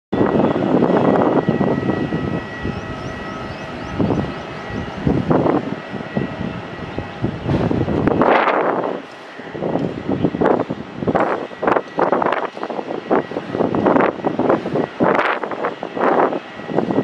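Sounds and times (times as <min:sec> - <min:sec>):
gusty wind on microphone: 0:00.1 - 0:17.0
jet engine fan whine: 0:00.2 - 0:17.0.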